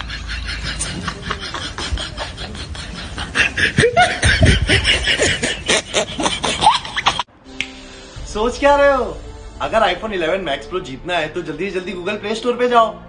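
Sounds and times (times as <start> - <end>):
man snickering: 0.0 - 7.2.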